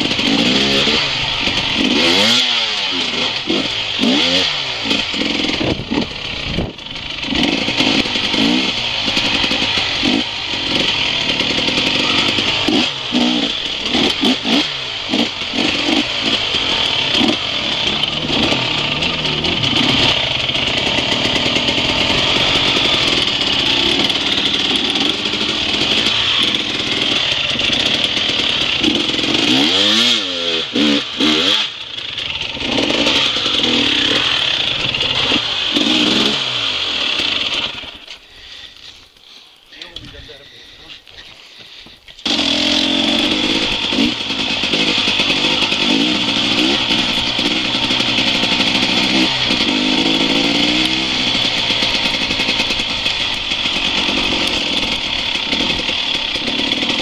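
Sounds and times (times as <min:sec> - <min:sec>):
dirt bike engine revving: 0:00.0 - 0:39.0, 0:42.2 - 0:57.0.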